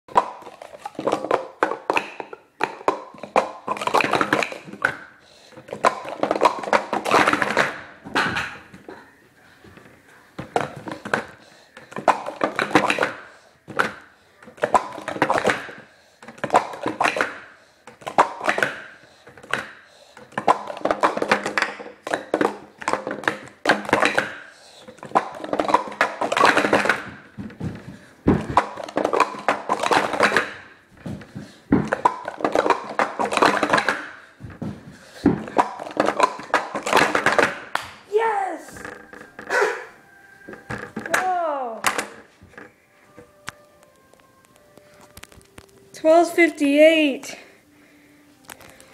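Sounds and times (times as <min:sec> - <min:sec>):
plastic cups clattering: 0:00.1 - 0:39.8, 0:40.5 - 0:46.1, 0:48.4 - 0:48.9.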